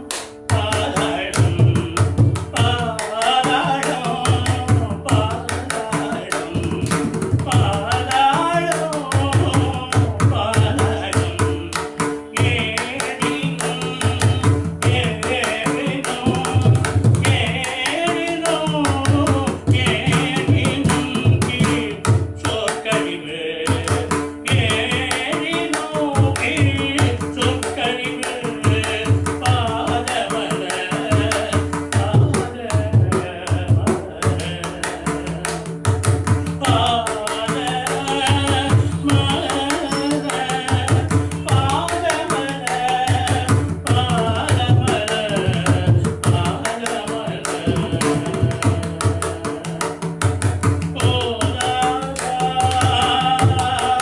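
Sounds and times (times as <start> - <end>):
man singing a hymn: 0.0 - 35.8, 36.4 - 54.0.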